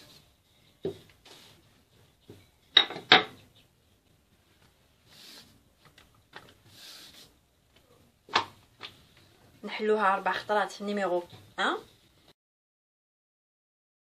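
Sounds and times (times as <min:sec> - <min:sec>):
dough brushing and rubbing: 0:00.0 - 0:02.7, 0:03.3 - 0:08.0.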